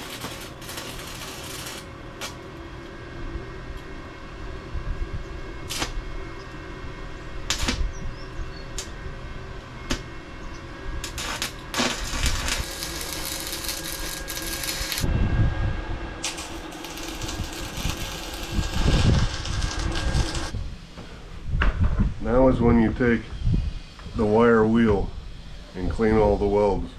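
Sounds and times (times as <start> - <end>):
arc welding crackling: 0.0 - 2.6, 5.6 - 6.6, 7.4 - 8.0, 8.7 - 9.1, 11.0 - 15.1, 16.2 - 20.7.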